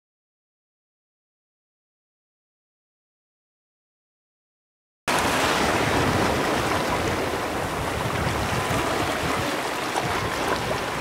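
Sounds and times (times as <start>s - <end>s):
waves washing over rocks: 5.1s - 11.0s.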